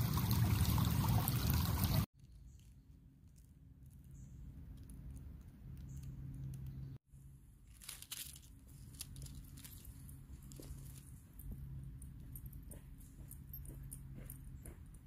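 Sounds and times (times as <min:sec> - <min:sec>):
crinkling and rustling: 0:02.2 - 0:07.0, 0:07.6 - 0:14.4.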